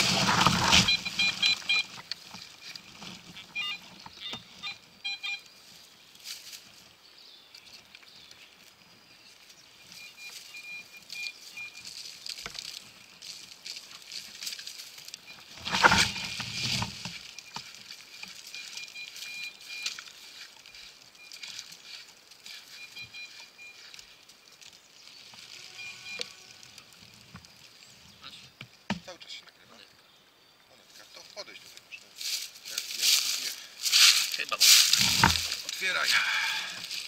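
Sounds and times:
hands digging through dry leaves: 0.0 - 1.9, 11.4 - 27.0, 32.1 - 37.0
metal detector beeps: 0.0 - 5.6, 9.8 - 12.3, 14.9 - 24.2, 25.5 - 27.3.

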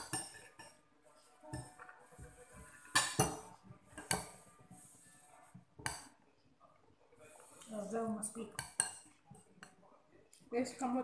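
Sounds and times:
cutlery clinking against dishes: 2.8 - 4.3.

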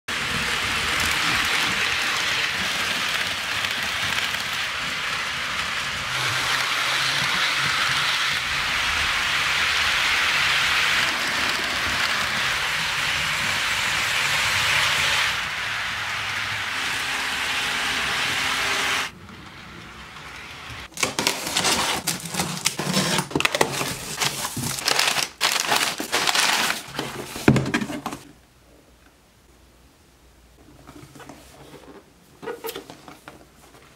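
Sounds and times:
model trains rolling on track: 0.1 - 20.9
cardboard box and paper crinkling: 21.0 - 28.2.

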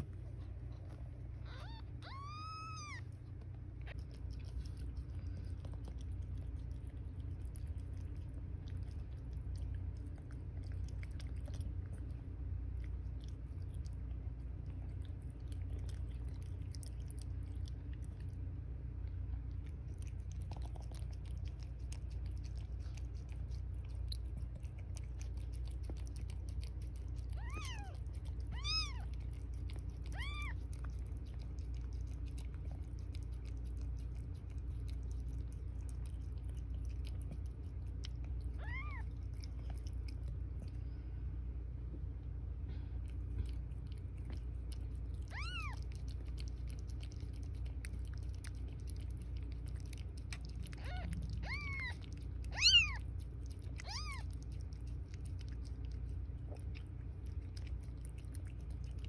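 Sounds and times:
kittens chewing and suckling: 0.0 - 59.0
low hum: 0.0 - 59.0
kitten mewing: 1.4 - 3.1, 27.3 - 29.2, 30.0 - 30.8, 38.5 - 39.2, 45.2 - 45.9, 50.4 - 54.5.

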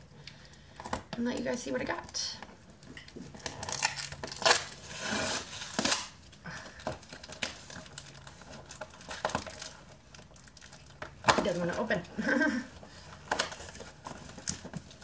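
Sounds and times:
packing tape ripping off box: 3.3 - 11.9, 13.0 - 15.0.

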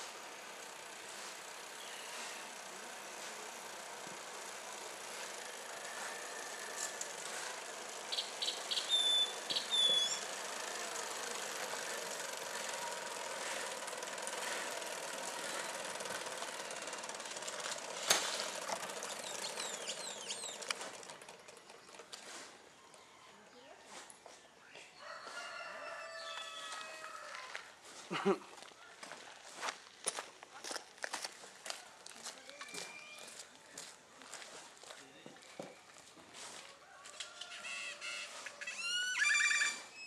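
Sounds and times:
high bird chirps: 8.1 - 10.3, 19.1 - 20.7
rail cart wheels rattling: 10.2 - 22.4.

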